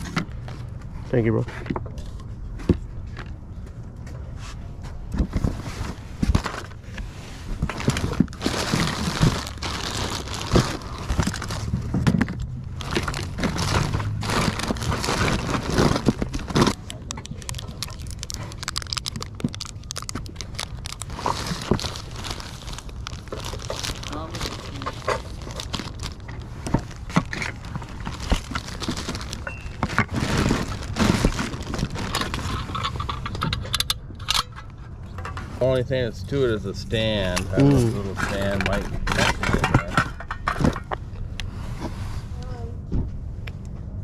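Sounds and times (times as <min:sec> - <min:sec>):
plastic bags crinkling: 0:07.6 - 0:33.4
small plastic pieces clattering: 0:07.6 - 0:33.9.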